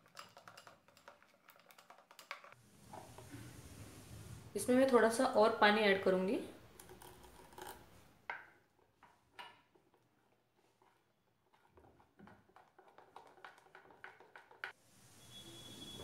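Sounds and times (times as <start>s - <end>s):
hand beating batter in bowl: 8.3s - 14.8s.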